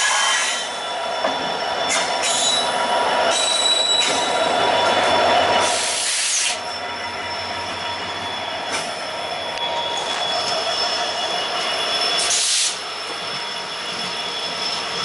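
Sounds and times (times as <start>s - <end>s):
diesel locomotive engine passing: 0.0s - 15.0s
rail and wheel noise: 0.0s - 15.0s.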